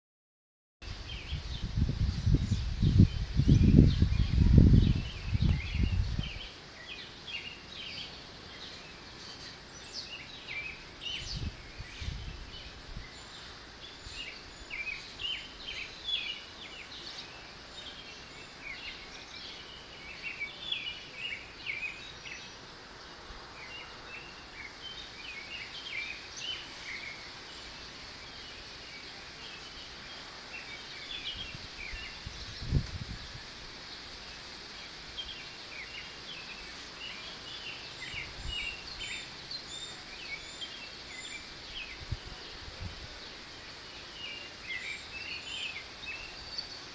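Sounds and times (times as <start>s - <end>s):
wind gusts on microphone: 0.8s - 6.6s, 11.0s - 13.4s, 30.9s - 34.0s, 38.0s - 39.2s, 41.2s - 43.3s
small birds chirping: 0.8s - 46.9s
wind rustling tree leaves: 0.8s - 46.9s.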